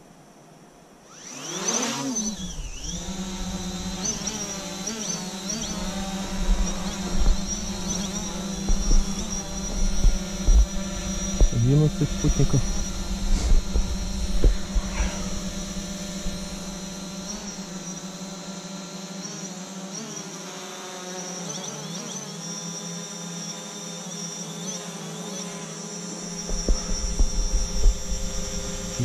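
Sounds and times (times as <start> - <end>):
drone propellers buzzing: 1.0 - 29.0
low rumble: 5.7 - 17.8.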